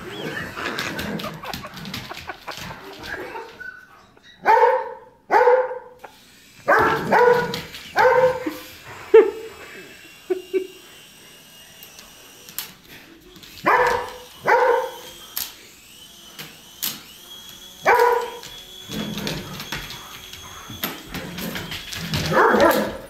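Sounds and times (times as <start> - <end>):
toy helicopter motor whine: 0.0 - 3.6, 6.0 - 23.0
dog barking: 4.4 - 6.0, 6.7 - 8.5, 13.6 - 15.0, 17.8 - 18.4, 22.3 - 23.0.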